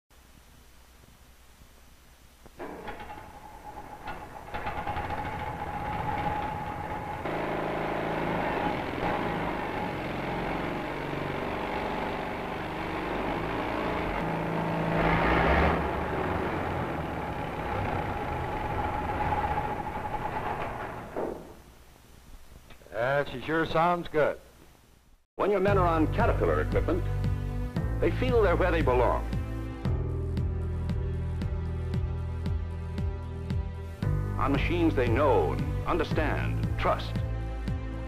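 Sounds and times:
engine starting and running: 2.6s - 21.7s.

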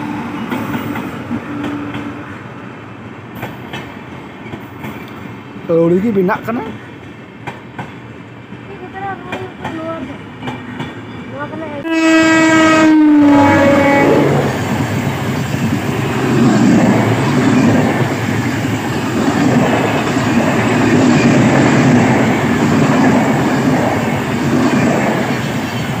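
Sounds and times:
train coaches rumbling past: 0.0s - 26.0s
train horn blowing: 11.8s - 14.6s.

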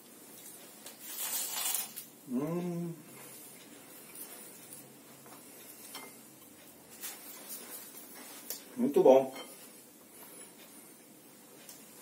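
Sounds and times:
person humming mmm: 2.2s - 3.2s.

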